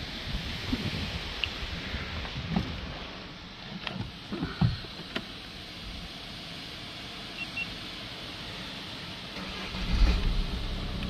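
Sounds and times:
background hiss: 0.0 - 11.0
car engine starting: 1.2 - 11.0
faint high beep: 7.4 - 7.7.

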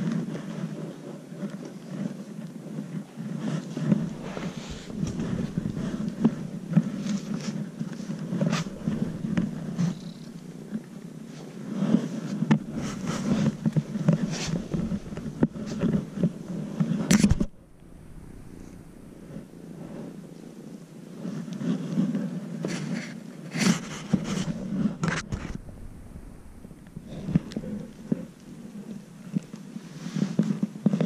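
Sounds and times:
fur rustling under hands: 3.4 - 30.6
kitten purring: 3.9 - 11.3, 12.1 - 20.8, 23.7 - 29.6.

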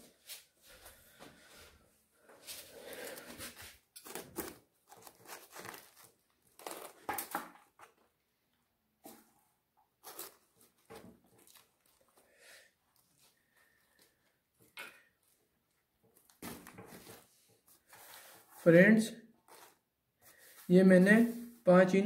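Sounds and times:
plastic sack crinkling: 3.9 - 7.3, 10.0 - 12.2.

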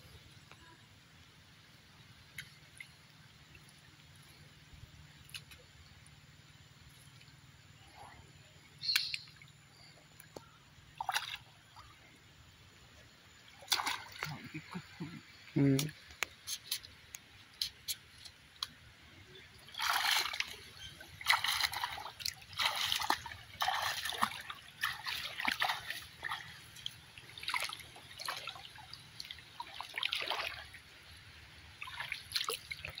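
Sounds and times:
splashing footsteps in water: 13.6 - 14.6, 19.6 - 30.8, 31.8 - 33.0.

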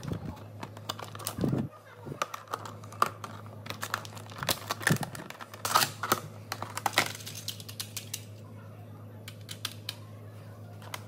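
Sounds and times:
plastic packaging clicking and crinkling: 0.0 - 8.4.

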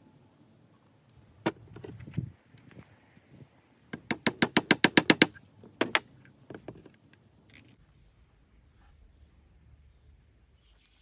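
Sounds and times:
hammer tapping wooden dowel: 3.9 - 6.0.

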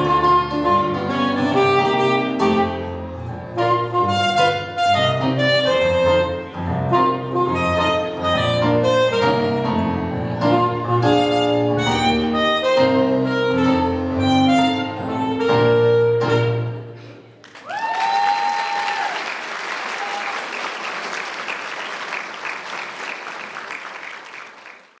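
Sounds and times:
audience applause: 17.4 - 25.0.

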